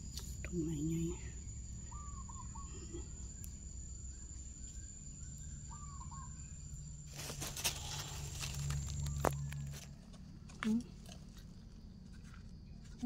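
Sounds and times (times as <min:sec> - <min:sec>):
high insect buzz: 0:00.0 - 0:09.9
dry leaves rustling and crackling: 0:07.1 - 0:10.0.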